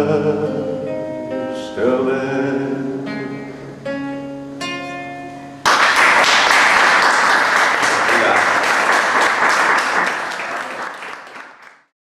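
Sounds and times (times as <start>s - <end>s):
classical guitar chords: 0.0s - 5.7s
audience applause: 5.7s - 11.9s.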